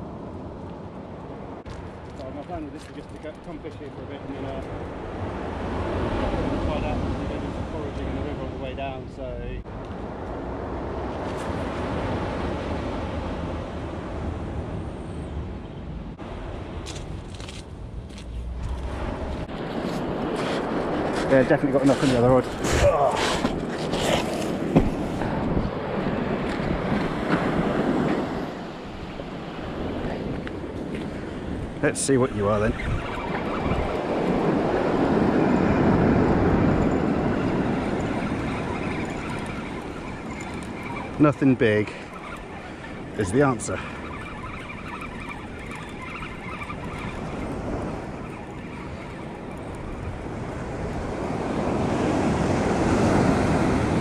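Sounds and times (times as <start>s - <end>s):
wind buffeting microphone: 0.0s - 54.0s
surf washing onto beach: 18.9s - 44.4s, 46.9s - 54.0s.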